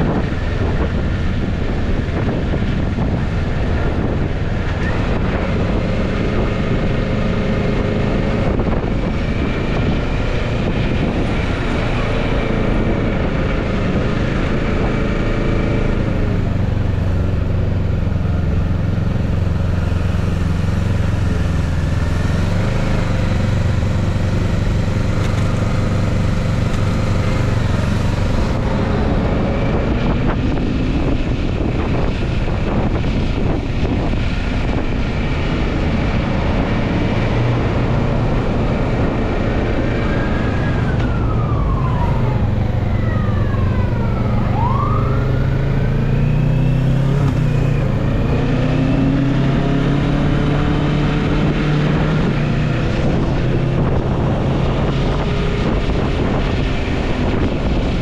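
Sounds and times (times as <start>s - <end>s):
motorcycle engine running: 0.0s - 41.4s
wind and road noise: 0.0s - 58.0s.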